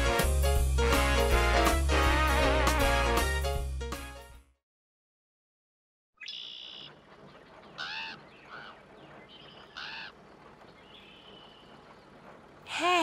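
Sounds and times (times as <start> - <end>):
goose honking: 9.8 - 10.1.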